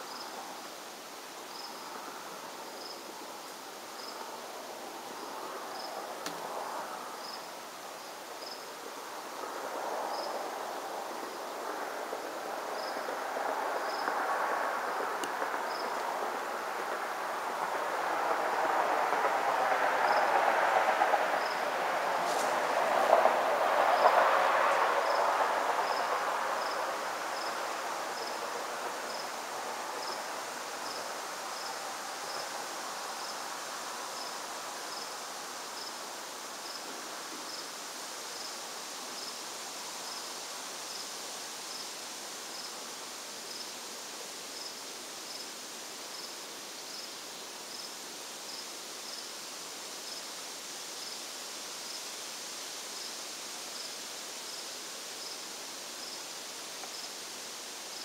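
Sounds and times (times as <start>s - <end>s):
insect chirping: 0.0s - 11.8s, 12.6s - 18.8s, 21.3s - 21.6s, 22.3s - 58.0s
faint outdoor background noise: 0.0s - 58.0s
passing vehicle rumble: 9.4s - 32.3s.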